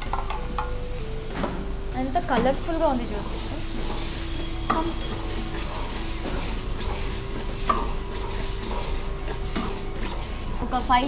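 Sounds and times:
paste sizzling in a wok: 1.7 - 11.0
ladle stirring in a wok: 3.0 - 11.0.

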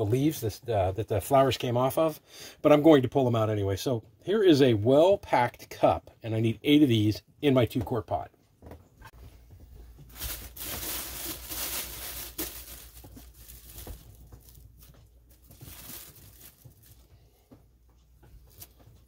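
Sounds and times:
plastic bag crinkling: 9.9 - 17.4, 18.4 - 18.8.

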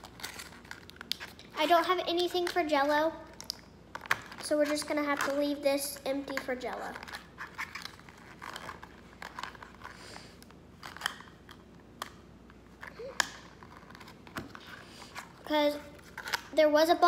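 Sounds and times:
card crinkling: 0.0 - 1.5, 6.2 - 16.6.

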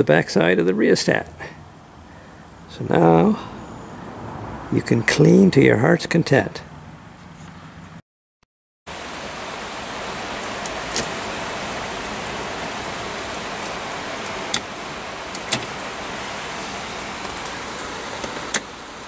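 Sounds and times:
steady rushing noise: 8.9 - 19.0.

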